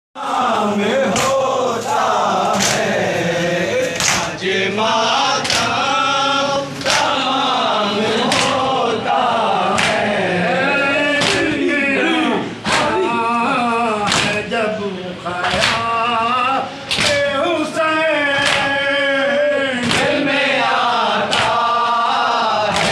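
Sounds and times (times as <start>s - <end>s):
crowd of men chanting: 0.2s - 22.9s
hands slapping chests: 4.0s - 4.3s, 11.2s - 11.5s, 12.6s - 13.0s, 18.4s - 18.7s, 19.8s - 20.2s.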